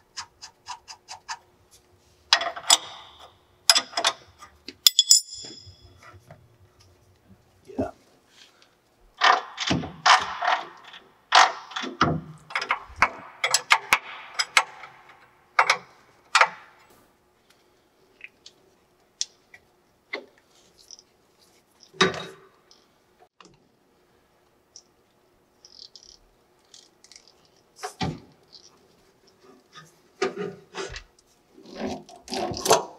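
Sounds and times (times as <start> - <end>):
metal belts clanking and rattling: 2.3 - 6.3.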